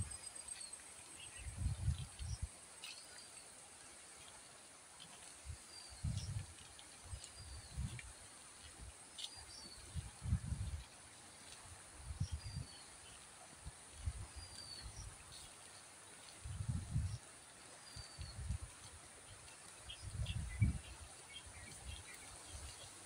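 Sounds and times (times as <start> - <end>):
wind buffeting microphone: 1.3 - 2.5, 6.0 - 6.5, 7.4 - 8.1, 9.8 - 10.9, 12.0 - 12.8, 16.4 - 17.2, 19.9 - 22.8.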